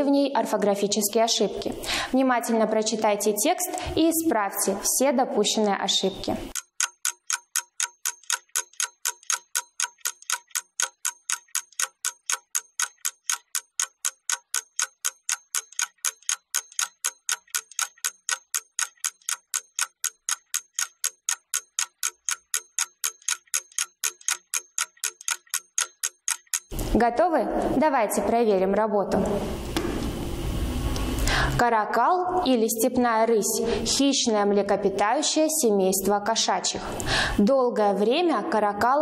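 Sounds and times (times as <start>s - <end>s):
clock ticking fast: 6.5s - 26.8s.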